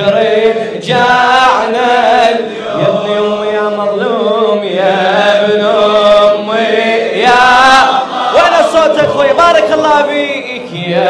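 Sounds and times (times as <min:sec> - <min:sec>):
man chanting a lament: 0:07.3 - 0:11.0.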